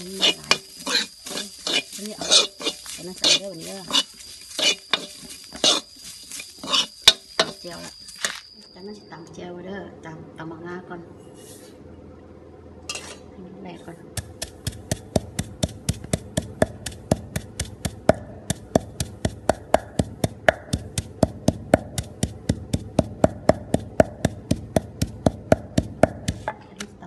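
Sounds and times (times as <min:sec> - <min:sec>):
pestle pounding seeds in mortar: 0:00.0 - 0:08.5, 0:14.1 - 0:27.0.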